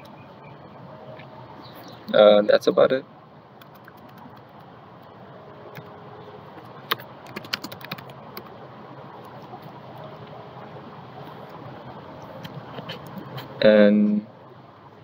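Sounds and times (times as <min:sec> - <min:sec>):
computer keyboard keys clicking: 0:03.6 - 0:04.7, 0:06.8 - 0:08.5.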